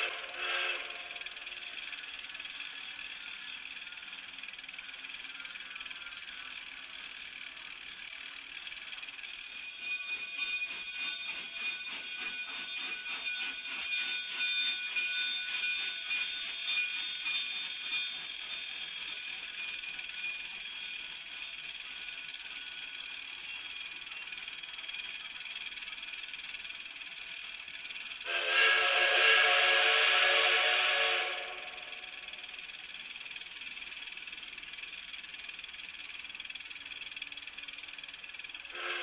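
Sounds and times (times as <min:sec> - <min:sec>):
steady high-pitched chirring: 0:00.0 - 0:28.3
steam locomotive chuffing: 0:00.0 - 0:39.0.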